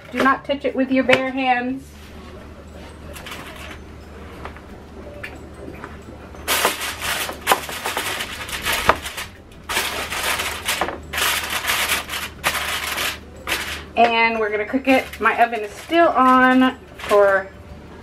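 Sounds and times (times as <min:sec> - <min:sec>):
aluminium foil crinkling: 0:06.5 - 0:17.5.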